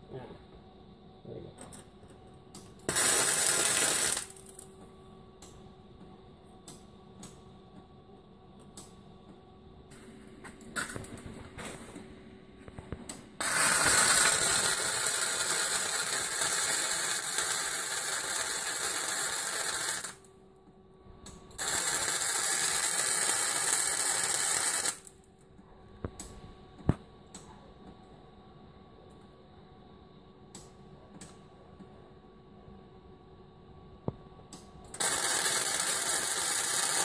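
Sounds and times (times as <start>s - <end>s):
welding arc hissing: 2.9s - 4.6s, 13.4s - 20.2s, 21.6s - 25.1s, 35.0s - 37.0s.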